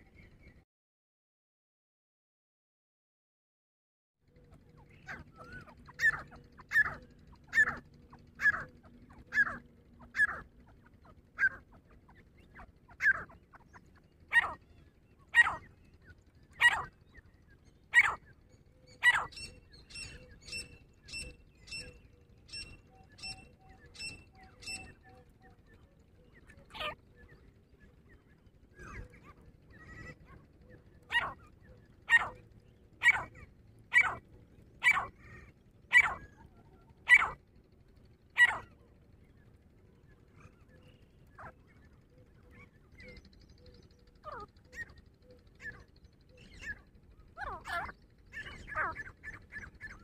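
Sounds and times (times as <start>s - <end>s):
francolin calling: 4.8s - 25.2s, 28.7s - 34.2s, 34.8s - 37.5s, 38.3s - 38.8s, 40.4s - 50.0s.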